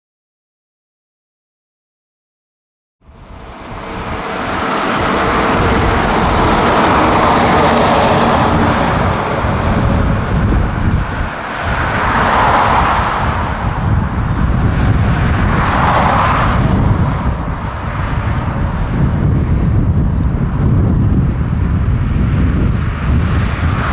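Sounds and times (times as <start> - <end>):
jet engines roaring: 3.0 - 23.9.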